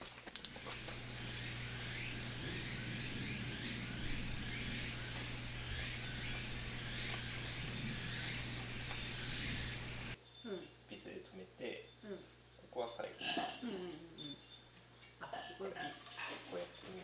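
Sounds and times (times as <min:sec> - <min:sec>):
steady high drone: 0:00.4 - 0:10.2
low steady hum: 0:00.4 - 0:14.7
chirping animal calls: 0:00.5 - 0:10.2.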